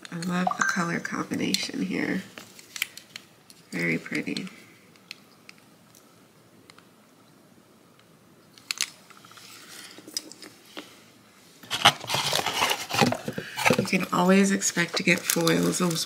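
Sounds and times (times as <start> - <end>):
plastic containers clicking and rattling: 11.7 - 14.2, 14.8 - 16.0.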